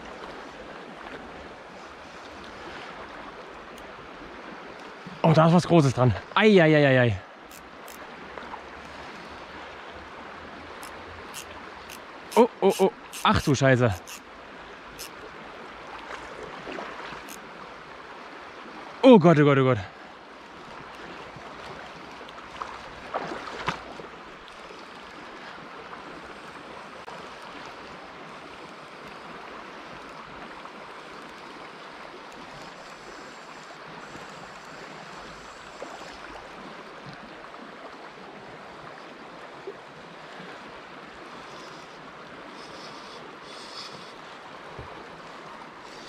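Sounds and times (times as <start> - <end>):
river current rushing: 0.0 - 46.0
sharp clicks: 12.3 - 14.2.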